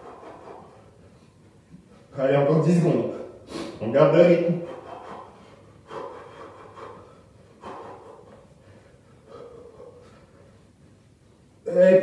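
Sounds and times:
man exhaling sharply: 3.3s - 3.8s.

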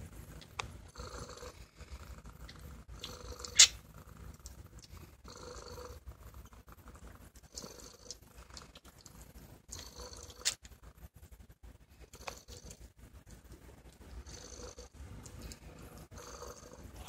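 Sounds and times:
cat purring: 0.0s - 17.0s
kittens suckling wet clicks: 2.4s - 5.1s, 6.4s - 10.8s, 15.0s - 16.1s.

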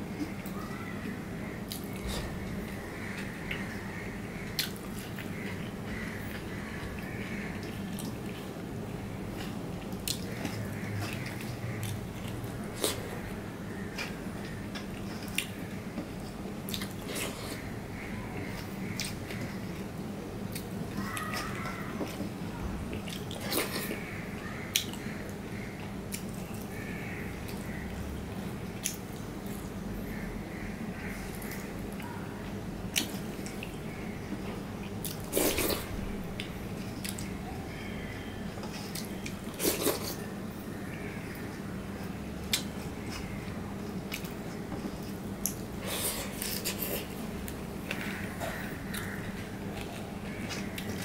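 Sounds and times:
eating sounds: 0.0s - 51.0s
wet squishing of food: 42.4s - 51.0s.

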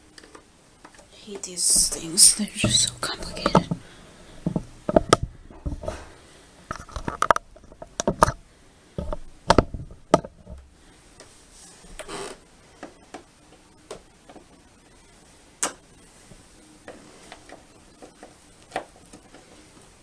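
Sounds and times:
plastic stand clicks and knocks: 4.5s - 5.3s.

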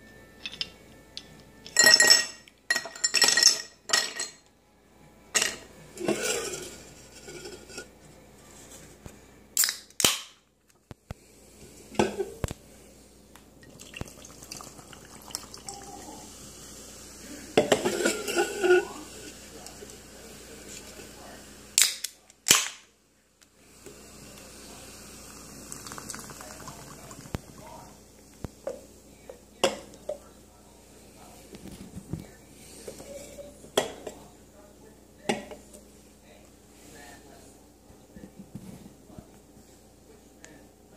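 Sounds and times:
can cracked open: 9.6s - 10.4s, 21.8s - 22.8s
fizzing drink pouring over ice: 13.7s - 17.3s, 23.9s - 28.0s.

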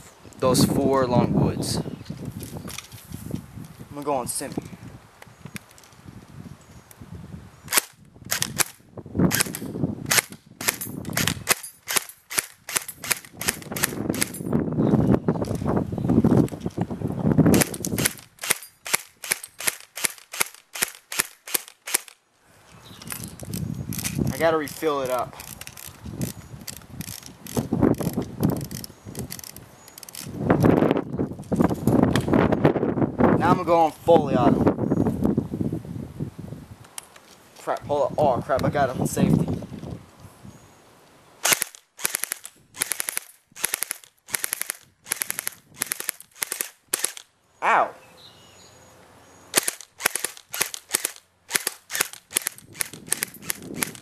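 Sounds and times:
airsoft rifle shots: 17.5s - 22.2s, 41.4s - 47.3s, 49.5s - 54.0s.

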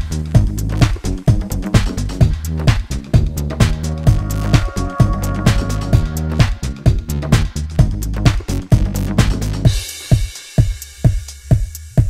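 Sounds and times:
electronic music with kick drum: 0.0s - 12.0s.

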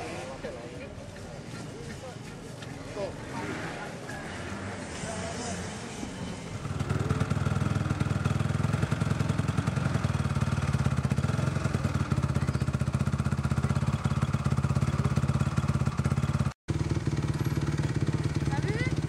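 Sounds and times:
motorcycle engine idling: 6.5s - 19.0s.

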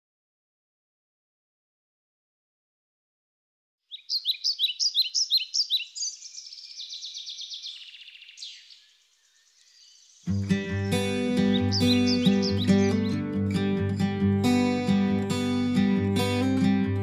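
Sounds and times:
songbird chirping: 3.8s - 17.0s
buzzy bird trill: 3.9s - 13.3s
acoustic guitar music: 10.3s - 17.0s.

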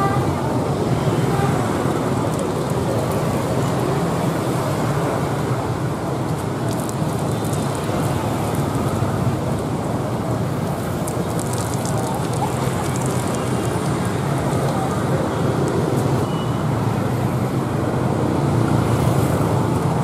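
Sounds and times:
street background rumble: 0.0s - 20.0s.

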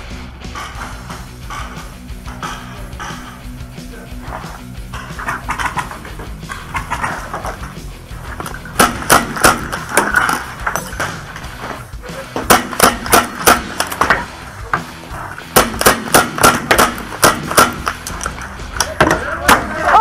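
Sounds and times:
paintball markers firing: 8.4s - 11.1s, 12.4s - 14.3s, 15.4s - 19.7s.

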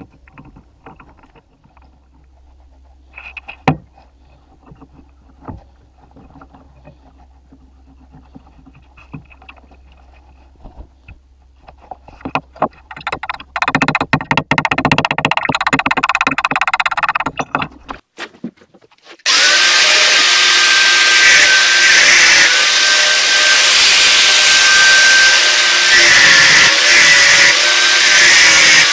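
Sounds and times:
low steady hum: 0.0s - 13.6s.

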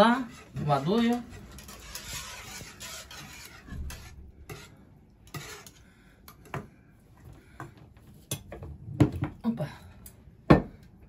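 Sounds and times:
whisk swishing in liquid: 0.0s - 5.8s
whisk clinking against pot: 0.3s - 4.7s.

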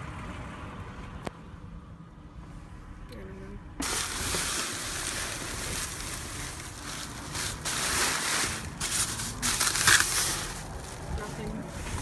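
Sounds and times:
plastic bags rustling: 3.8s - 12.0s.

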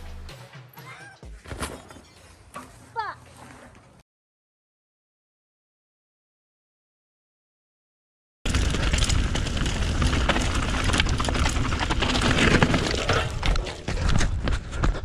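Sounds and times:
bike clattering over roots and rocks: 8.5s - 15.0s
tyres rumbling on dirt: 8.5s - 15.0s.

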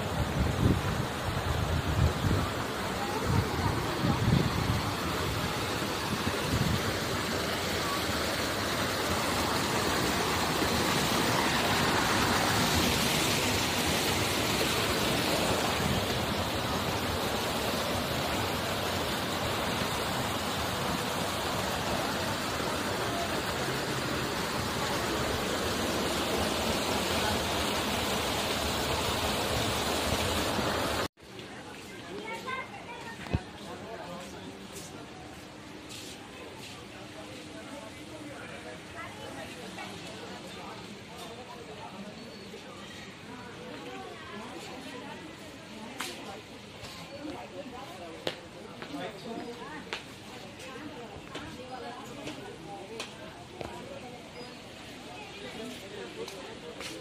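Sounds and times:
waterfall splashing into pool: 0.0s - 31.1s.

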